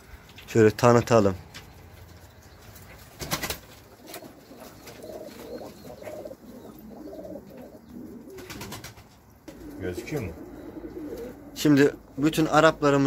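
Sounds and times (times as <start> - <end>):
pigeons cooing: 2.8 - 13.0.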